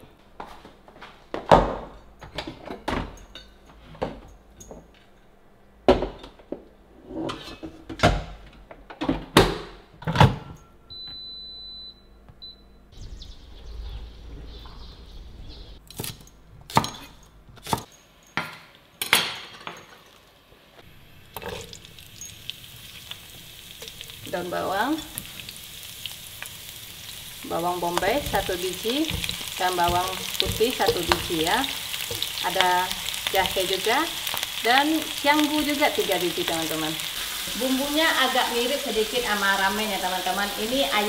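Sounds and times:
appliance electronic beep: 0:10.5 - 0:13.0.

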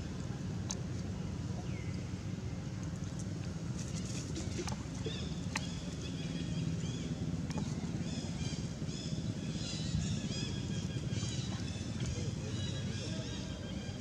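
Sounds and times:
steady low rumble: 0:00.0 - 0:14.0
small birds chirping: 0:03.9 - 0:14.0.

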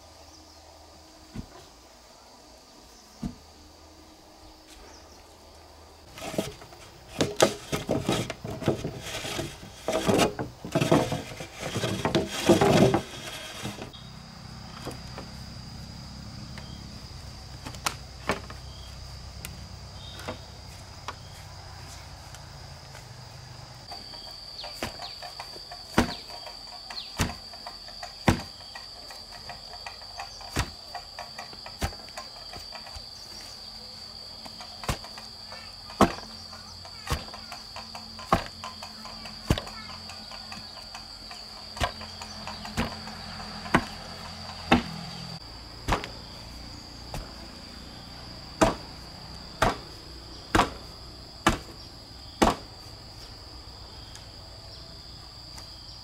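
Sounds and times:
clattering and rustling: 0:06.1 - 0:14.0, 0:23.8 - 0:33.7, 0:34.4 - 0:46.4
high-pitched insect drone: 0:12.0 - 0:56.0.

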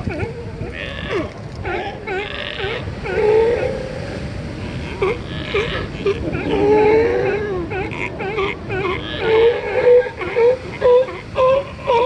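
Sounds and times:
ocean surf: 0:00.0 - 0:12.0
sea lions calling: 0:00.0 - 0:12.0.

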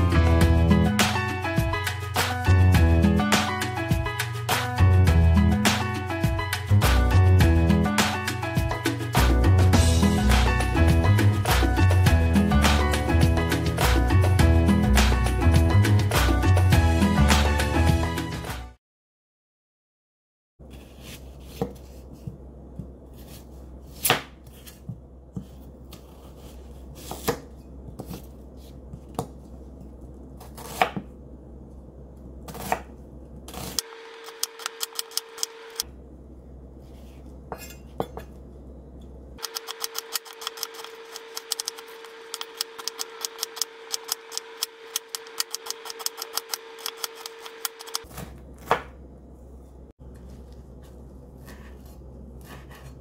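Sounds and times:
knife chopping onion on wooden board: 0:20.9 - 0:28.3, 0:30.4 - 0:31.1, 0:32.5 - 0:32.9, 0:39.4 - 0:49.0.

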